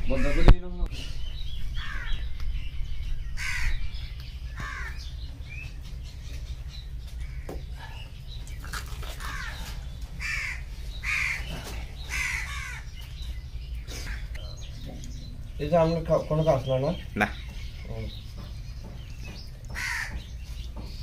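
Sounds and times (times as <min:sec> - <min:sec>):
crows cawing: 0:00.0 - 0:00.6, 0:01.8 - 0:02.3, 0:03.4 - 0:03.8, 0:04.6 - 0:05.1, 0:09.2 - 0:13.0, 0:13.9 - 0:14.4, 0:19.6 - 0:20.4
steady low hum: 0:00.0 - 0:21.0.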